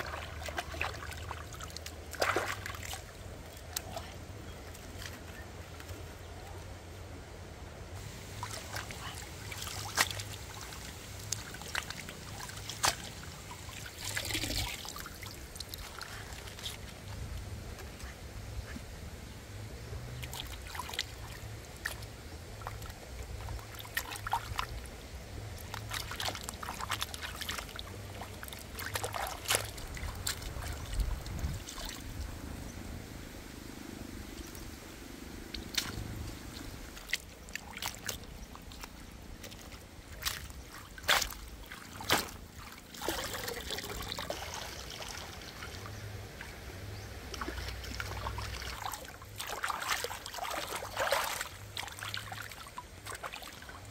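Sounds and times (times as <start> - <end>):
splashing as vegetables are washed: 0.0 - 4.1, 8.0 - 17.1, 25.6 - 32.2, 35.5 - 45.9, 47.2 - 53.9
stream trickling over stones: 0.0 - 7.2, 7.9 - 18.5, 19.9 - 53.9.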